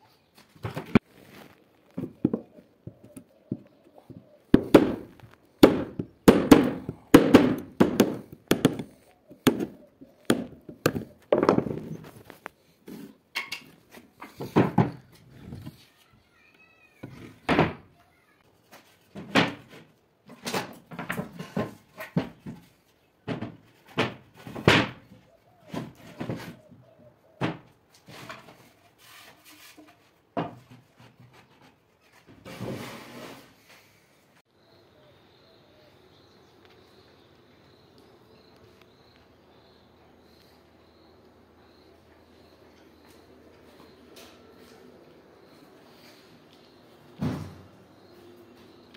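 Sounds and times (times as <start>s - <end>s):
sharp knocks on plywood: 4.5s - 11.8s.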